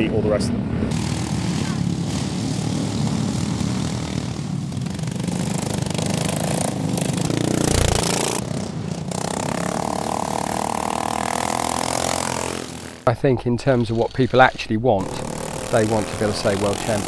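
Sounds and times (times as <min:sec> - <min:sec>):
small engines buzzing at high revs: 0:00.8 - 0:13.1, 0:15.0 - 0:17.0.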